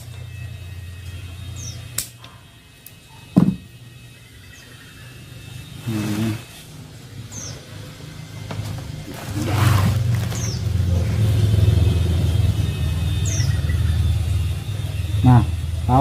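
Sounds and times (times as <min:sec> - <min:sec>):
low engine hum: 0:06.8 - 0:16.0.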